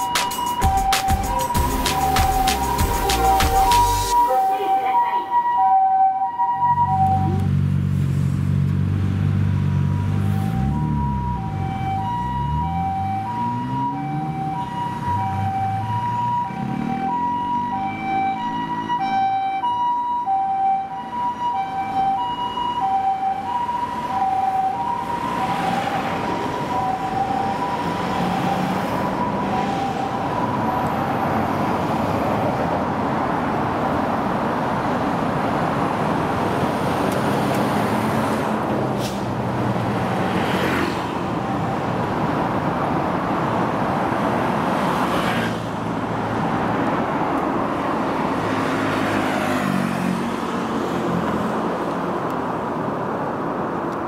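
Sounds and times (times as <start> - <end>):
two-tone ambulance siren: 0.0 - 7.6, 9.6 - 32.2, 40.4 - 43.2
road traffic noise: 0.0 - 54.0
vehicles passing: 0.0 - 54.0.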